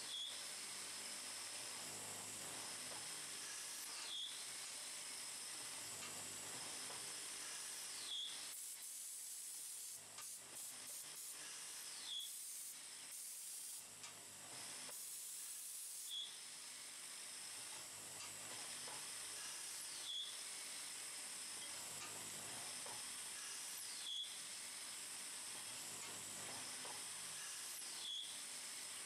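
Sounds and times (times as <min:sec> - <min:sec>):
short high squeak: 0:28.0 - 0:28.4.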